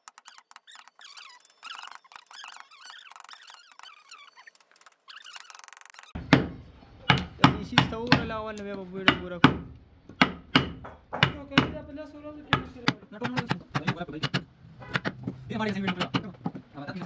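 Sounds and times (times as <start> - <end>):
chisel scraping wood: 0.0 - 6.2
mallet striking chisel: 6.2 - 11.9, 12.5 - 16.5.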